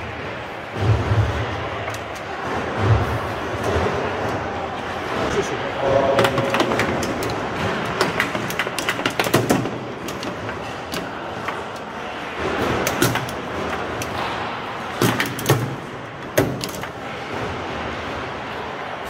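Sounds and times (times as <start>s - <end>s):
steady background noise: 0.0s - 19.0s
foosball ball clacking: 6.1s - 17.0s
foosball rods sliding: 6.1s - 17.5s.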